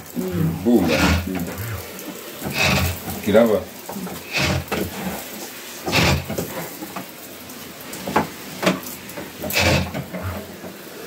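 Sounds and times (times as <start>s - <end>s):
sprayer hissing: 0.0s - 11.0s
spray bursts: 0.5s - 6.8s.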